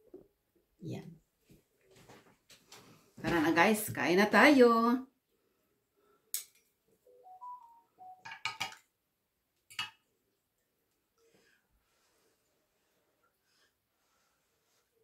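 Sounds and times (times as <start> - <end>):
cutlery clinking on plastic tray: 8.3 - 8.8.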